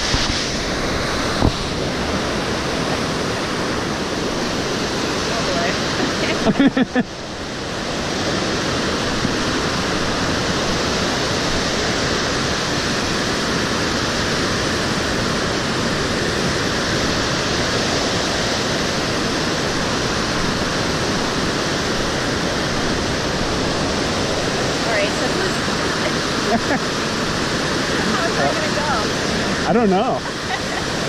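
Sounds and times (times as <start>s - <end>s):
river rapids rushing: 0.0s - 31.0s
burst of laughter: 6.4s - 7.1s.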